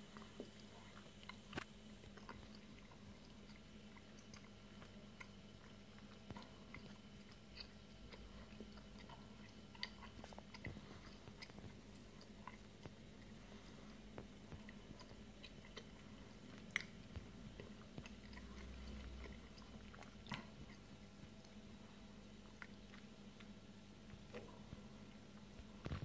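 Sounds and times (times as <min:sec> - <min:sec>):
aquarium pump hum: 0:00.0 - 0:26.0
small clicks and crackles: 0:25.4 - 0:26.0.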